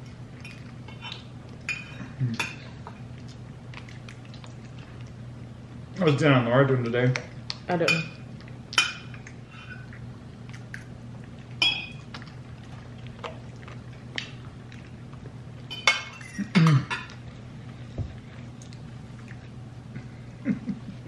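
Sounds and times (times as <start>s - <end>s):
steady low hum: 0.0s - 21.0s
dishes and cutlery clinking: 0.4s - 2.8s, 7.8s - 10.0s, 11.6s - 12.0s, 15.7s - 17.2s.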